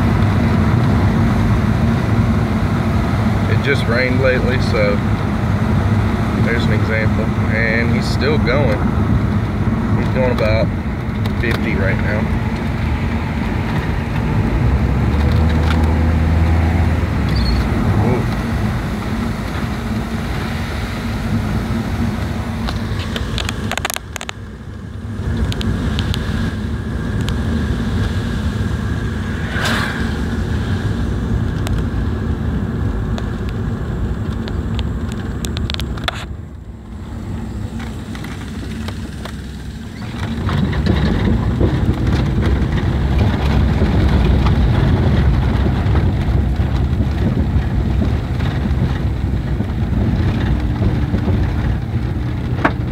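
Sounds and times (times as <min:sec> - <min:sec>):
car tyres and engine rumble: 0:00.0 - 0:52.9.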